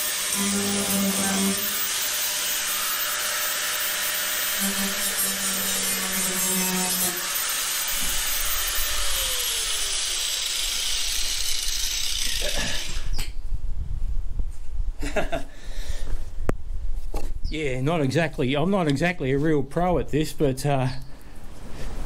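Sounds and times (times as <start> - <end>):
angle grinder cutting plastic: 0.0 - 13.3.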